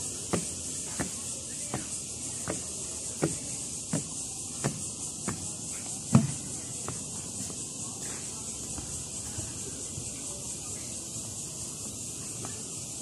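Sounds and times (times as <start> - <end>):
footsteps on wet wooden deck: 0.0 - 10.3
steady high hiss: 0.0 - 13.0.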